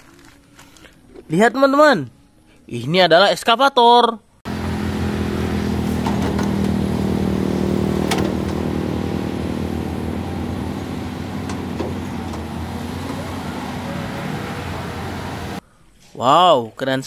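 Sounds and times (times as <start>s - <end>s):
excavator diesel engine running: 4.5s - 15.6s.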